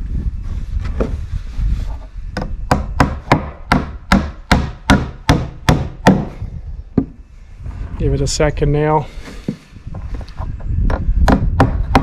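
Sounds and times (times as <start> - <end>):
hammer driving nail into wood: 2.4 - 6.3.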